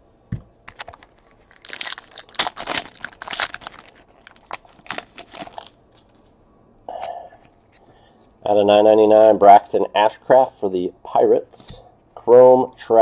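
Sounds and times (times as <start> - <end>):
foil wrapper tearing and crinkling: 0.7 - 5.8.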